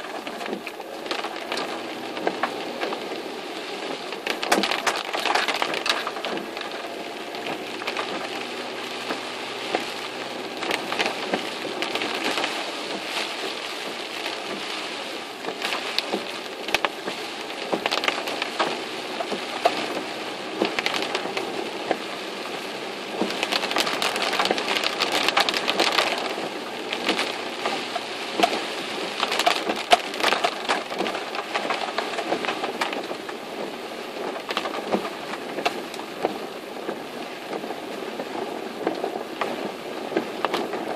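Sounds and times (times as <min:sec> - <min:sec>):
heavy rain pelting a car: 0:00.0 - 0:40.9.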